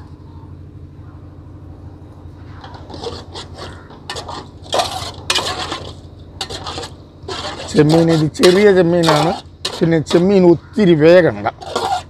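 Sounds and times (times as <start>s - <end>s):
steady low hum: 0.0s - 12.0s
metal ladle scraping in pot: 2.6s - 10.4s, 11.6s - 12.0s.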